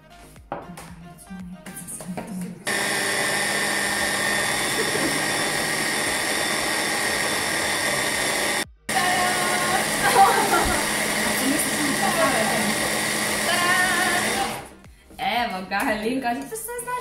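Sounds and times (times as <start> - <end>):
immersion blender motor whine: 2.6 - 14.8.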